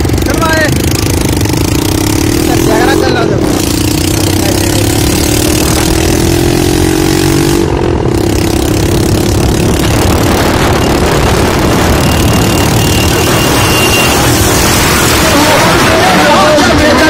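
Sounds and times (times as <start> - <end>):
motorcycle engine running: 0.0 - 17.0
wind rush on microphone: 8.7 - 16.8.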